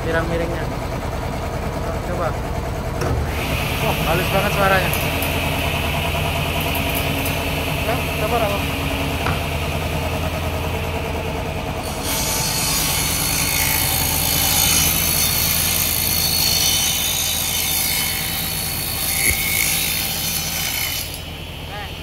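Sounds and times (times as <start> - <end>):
table saw motor hum: 2.9 - 22.0
saw blade cutting plywood: 11.8 - 21.3.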